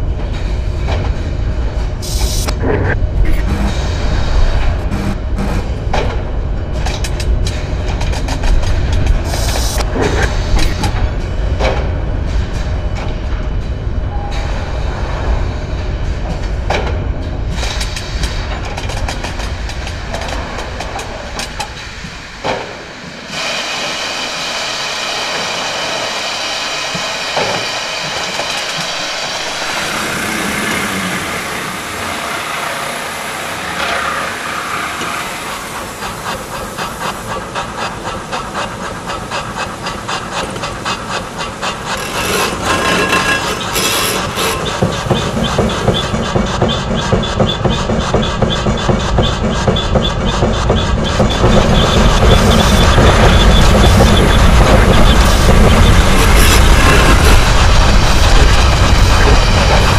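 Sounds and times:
steam hissing: 2.0 - 2.5, 19.5 - 59.9
rhythmic engine strokes: 2.0 - 6.0, 23.3 - 59.9.

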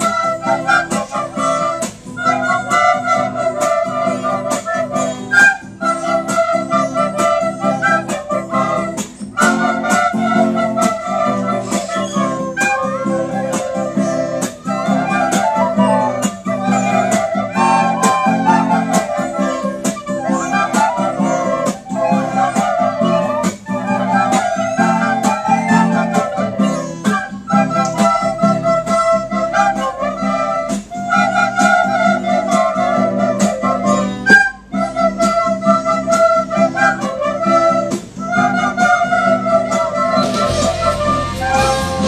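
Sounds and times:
soprano recorders playing melody: 0.0 - 42.0
low accompaniment with steady beat: 39.3 - 42.0.

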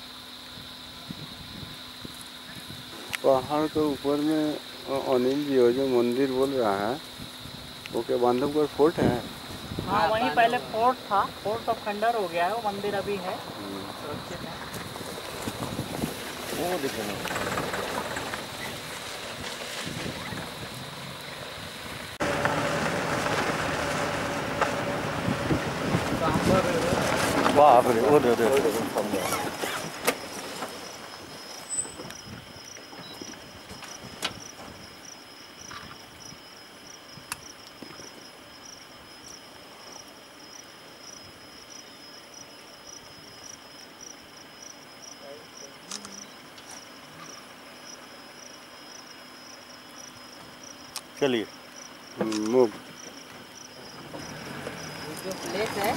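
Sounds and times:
insects chirping: 0.0 - 55.9
outdoor background noise: 0.0 - 55.9
wind buffeting microphone: 0.6 - 3.0, 8.8 - 12.0, 12.8 - 30.3
vehicle engine humming: 8.8 - 32.0, 52.8 - 55.9.

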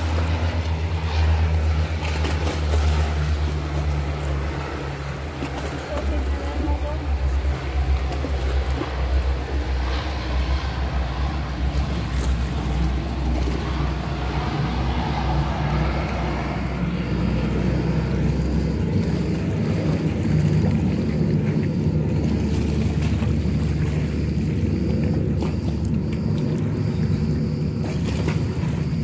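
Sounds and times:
distant aircraft engine drone: 0.0 - 29.0
low rumble: 0.0 - 29.0.

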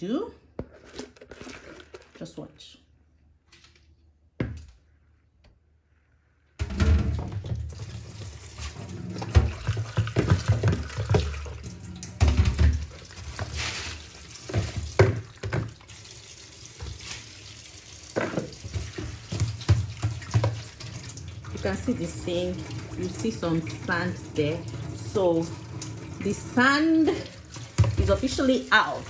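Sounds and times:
plastic bowls knocking: 9.2 - 13.6, 14.4 - 15.8, 18.2 - 20.7.

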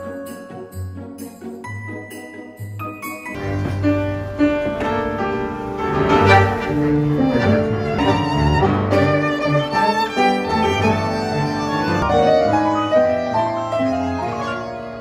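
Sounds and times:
piano: 0.0 - 15.0
violin melody with vibrato: 3.3 - 15.0
double bass: 3.4 - 9.8.

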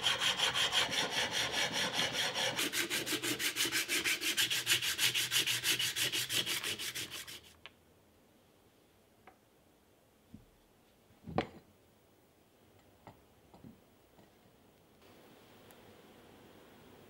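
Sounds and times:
file rubbing on metal: 0.0 - 7.6.

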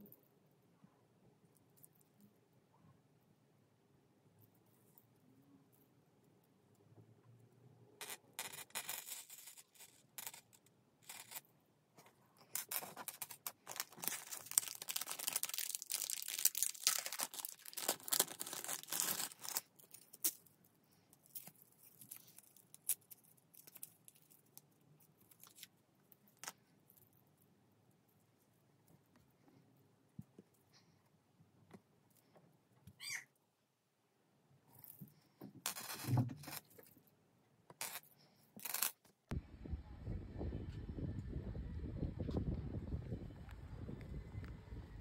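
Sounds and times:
rustling and crinkling: 8.4 - 31.0.

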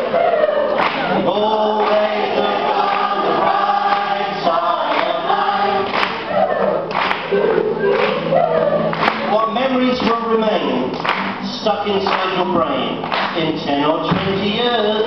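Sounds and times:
voices singing together: 0.0 - 10.8.

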